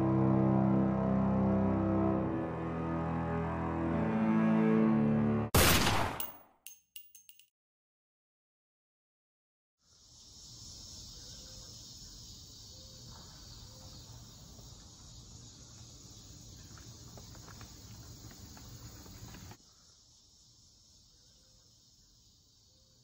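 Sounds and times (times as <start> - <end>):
crickets and insects chirring: 9.8 - 23.0.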